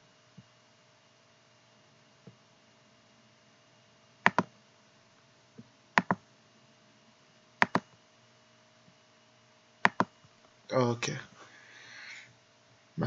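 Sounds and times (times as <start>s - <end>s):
computer mouse clicking: 4.3s - 4.5s, 6.0s - 6.2s, 7.6s - 7.9s, 9.8s - 10.1s.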